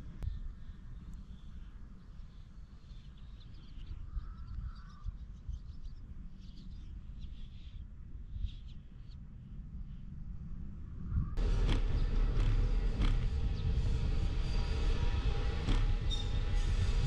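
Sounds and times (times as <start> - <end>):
steady low rumble: 0.0 - 17.0
small birds chirping: 0.2 - 9.3.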